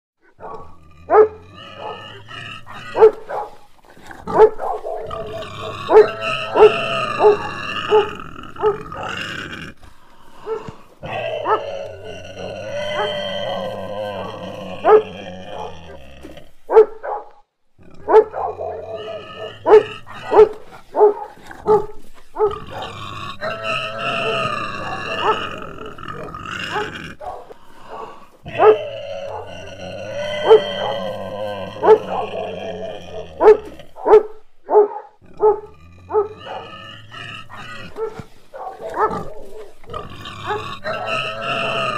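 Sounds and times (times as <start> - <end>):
dog barking: 0.2 - 9.1, 10.4 - 11.7, 14.8 - 15.9, 16.7 - 17.4, 18.0 - 23.0, 24.2 - 25.5, 26.2 - 29.6, 30.4 - 31.0, 31.8 - 32.4, 33.4 - 36.8, 37.4 - 39.8, 40.4 - 41.2
dog growling: 0.2 - 17.0, 17.8 - 41.9
dog barking sharply: 3.0 - 3.6, 16.7 - 17.4, 18.1 - 18.7, 33.4 - 36.7.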